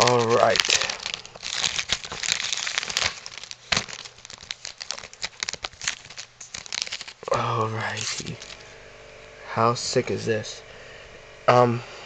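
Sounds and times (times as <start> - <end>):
plastic wrapper crinkling: 0.0 - 8.6.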